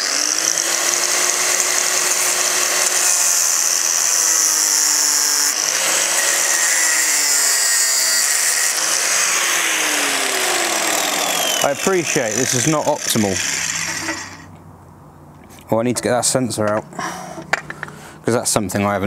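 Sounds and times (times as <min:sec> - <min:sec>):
angle grinder cutting metal: 0:00.0 - 0:14.5.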